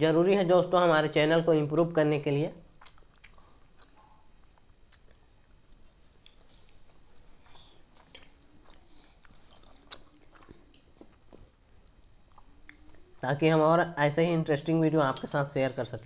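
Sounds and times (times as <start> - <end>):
soft chewing: 2.7 - 13.3.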